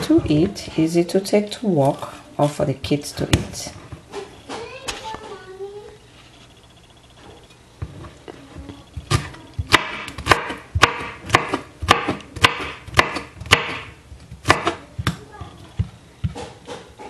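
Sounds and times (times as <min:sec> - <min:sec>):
knife chopping on cutting board: 0:09.0 - 0:15.2, 0:16.2 - 0:17.0.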